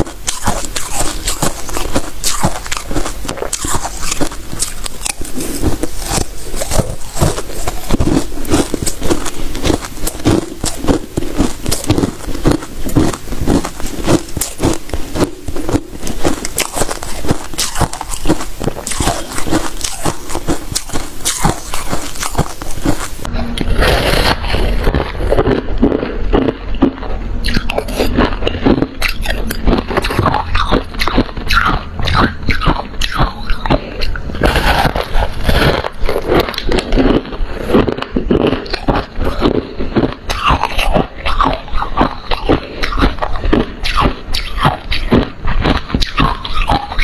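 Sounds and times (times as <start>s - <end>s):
ice being chewed: 0.0s - 47.0s.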